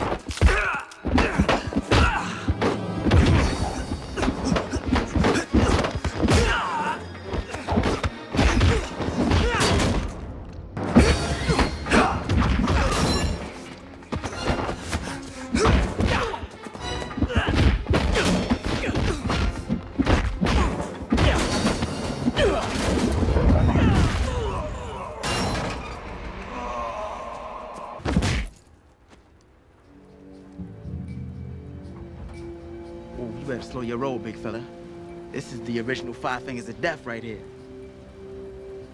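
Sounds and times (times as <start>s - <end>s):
action music score: 0.0s - 28.1s, 29.5s - 38.9s.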